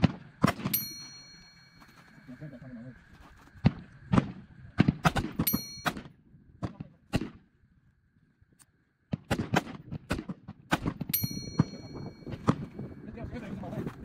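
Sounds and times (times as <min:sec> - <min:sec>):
rifle shots: 0:00.0 - 0:00.8, 0:03.6 - 0:07.5, 0:09.1 - 0:11.7
high ringing tone: 0:00.7 - 0:03.5, 0:05.4 - 0:06.2, 0:11.1 - 0:12.8.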